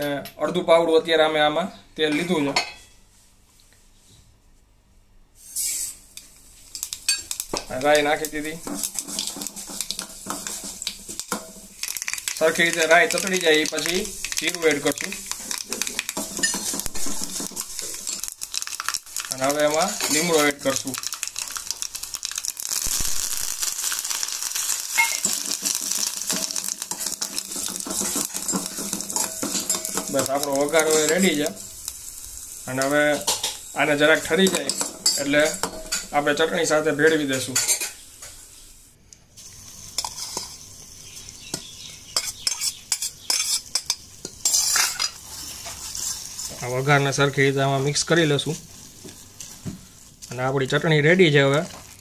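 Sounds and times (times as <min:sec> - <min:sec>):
hot oil sizzling: 0:05.4 - 0:52.0
metal spoon scraping steel: 0:05.5 - 0:06.0, 0:42.2 - 0:45.2
spoon stirring: 0:06.7 - 0:21.9, 0:24.9 - 0:31.4, 0:34.4 - 0:36.1, 0:41.5 - 0:46.5
seeds popping: 0:06.8 - 0:32.0.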